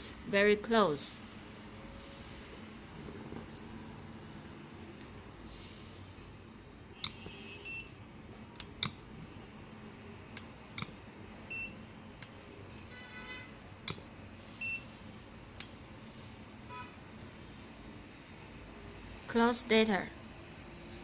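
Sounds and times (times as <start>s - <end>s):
probe clicks: 7.0s - 7.4s.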